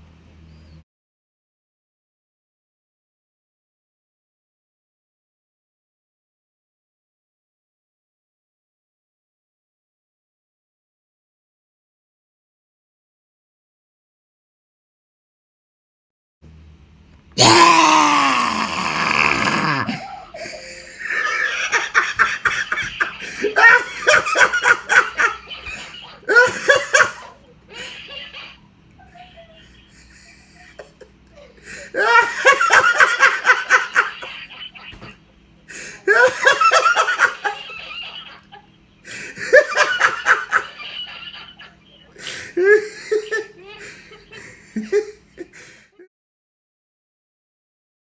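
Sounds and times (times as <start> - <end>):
person laughing: 17.4 - 46.1.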